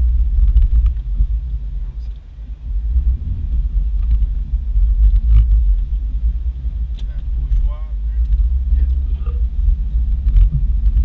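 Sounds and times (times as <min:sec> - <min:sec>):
off-road vehicle low rumble: 0:00.0 - 0:11.0.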